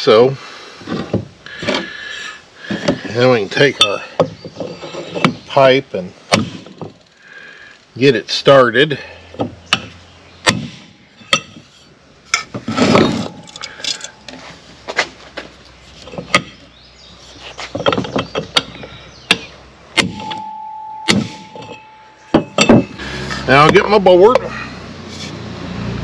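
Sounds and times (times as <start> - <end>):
metal pipe ringing: 9.7 - 12.5, 17.8 - 23.0.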